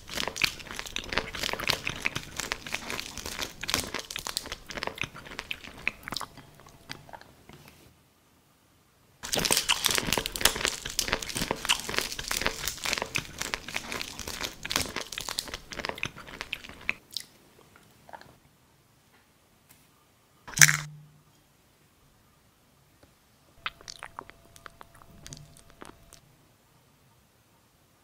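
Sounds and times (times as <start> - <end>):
crunching and chewing: 0.0 - 7.3, 9.2 - 18.3, 23.6 - 26.2.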